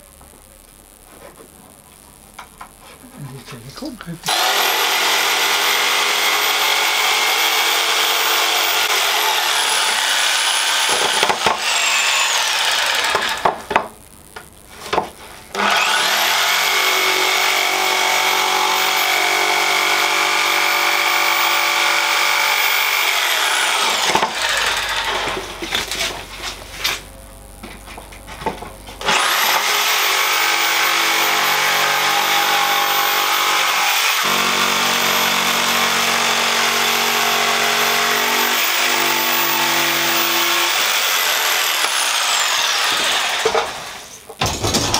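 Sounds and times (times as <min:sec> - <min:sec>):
jigsaw sawing wood: 0:04.3 - 0:13.6, 0:15.5 - 0:25.6, 0:29.0 - 0:44.0.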